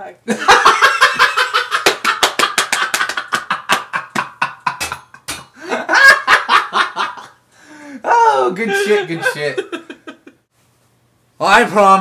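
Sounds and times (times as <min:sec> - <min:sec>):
woman laughing hard: 0:02.8 - 0:07.3.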